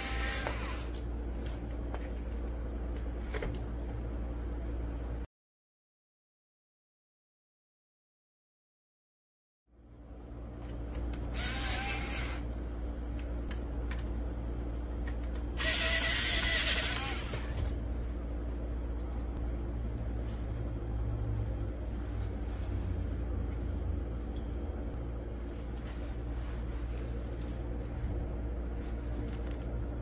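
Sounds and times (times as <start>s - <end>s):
cordless drill motor whining: 0.0s - 1.0s, 11.3s - 12.4s, 15.6s - 17.7s.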